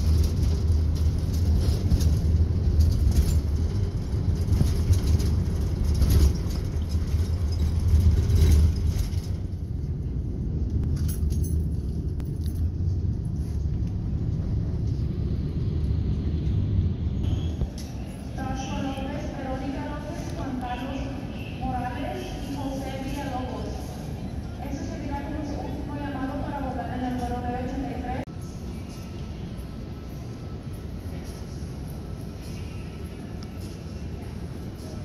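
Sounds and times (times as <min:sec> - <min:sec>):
tyre and road noise: 0:00.0 - 0:21.2
bus engine rumble: 0:00.0 - 0:35.0.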